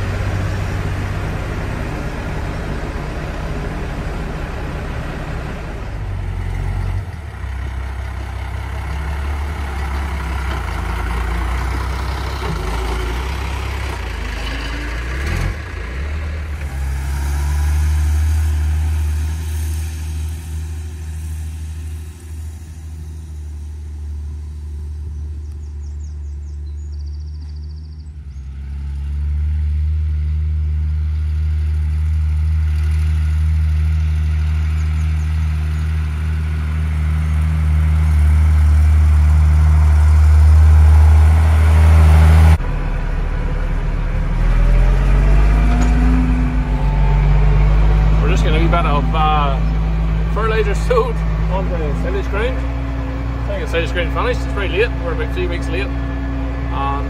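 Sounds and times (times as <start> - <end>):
tractor diesel engine droning: 0.0 - 57.0.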